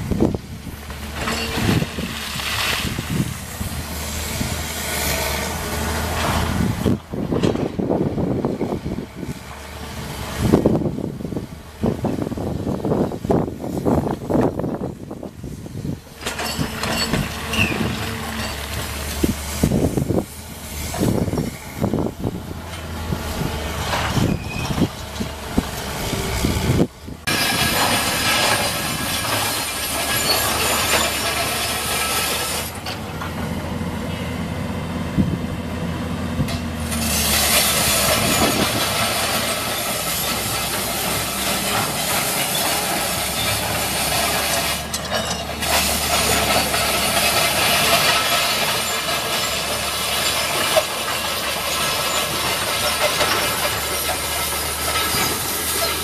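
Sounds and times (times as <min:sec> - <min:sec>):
excavator diesel engine running: 0:00.0 - 0:56.0
bucket scraping across gravel: 0:00.9 - 0:06.9, 0:27.3 - 0:32.8, 0:36.8 - 0:56.0
rattling and clanking: 0:16.1 - 0:33.6, 0:36.4 - 0:56.0.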